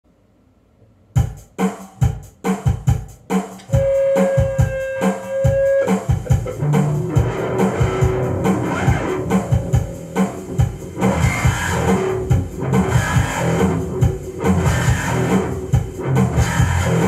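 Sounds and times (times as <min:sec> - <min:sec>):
band recording drums and guitars: 0:01.2 - 0:17.0
electric bass guitar: 0:03.6 - 0:17.0.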